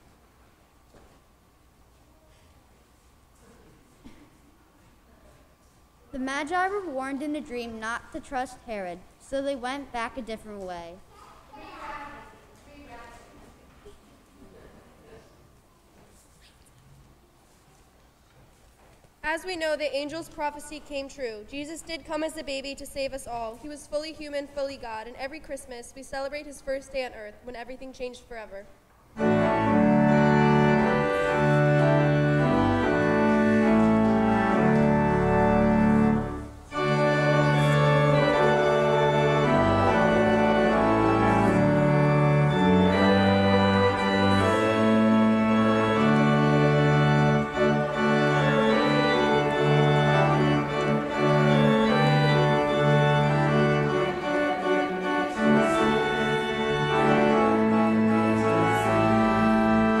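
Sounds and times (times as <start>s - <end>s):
pipe organ playing chords: 29.2s - 60.0s.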